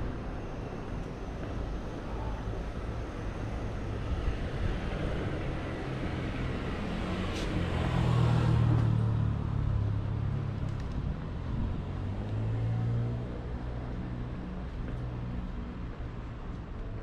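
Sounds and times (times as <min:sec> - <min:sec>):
street traffic noise: 0:00.0 - 0:17.0.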